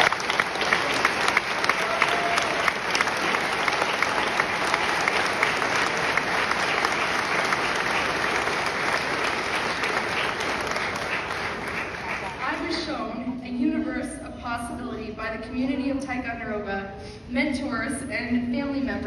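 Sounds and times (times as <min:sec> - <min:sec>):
audience applause: 0:00.0 - 0:12.7.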